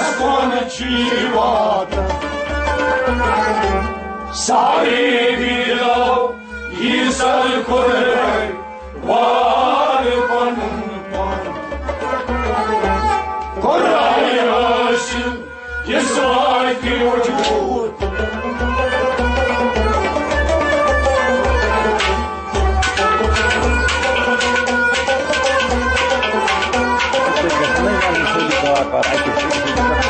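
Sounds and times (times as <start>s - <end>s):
man singing: 0.0s - 2.3s, 13.6s - 18.0s
harmonium: 0.0s - 30.0s
steady drum beat: 15.9s - 30.0s.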